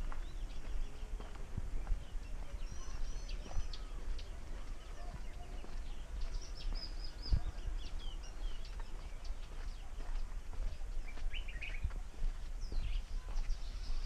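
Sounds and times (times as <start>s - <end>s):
footsteps on dirt path: 0.0s - 14.0s
songbirds chirping: 0.0s - 14.0s.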